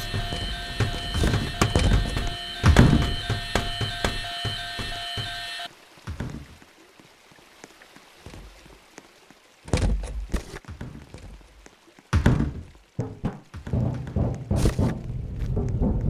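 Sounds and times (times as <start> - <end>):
dull thumps and knocks: 0.0 - 5.4, 6.1 - 6.6, 9.7 - 16.0.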